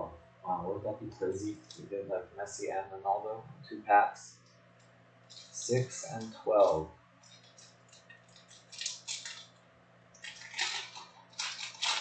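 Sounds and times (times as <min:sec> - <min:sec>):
foil wrapper crinkling: 0:05.2 - 0:09.6, 0:10.2 - 0:12.0.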